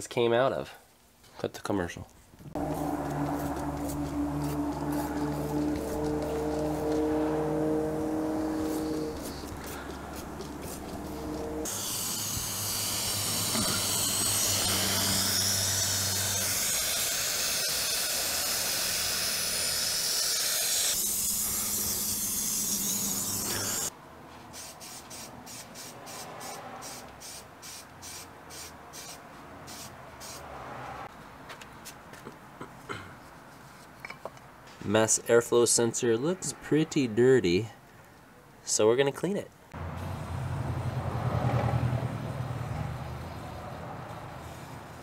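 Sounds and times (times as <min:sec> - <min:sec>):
hose spray hissing: 0:02.6 - 0:23.9.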